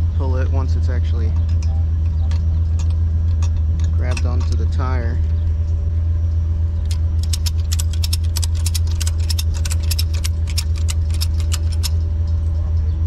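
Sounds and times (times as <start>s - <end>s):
sharp metallic clicks: 1.2s - 4.8s, 6.8s - 12.1s.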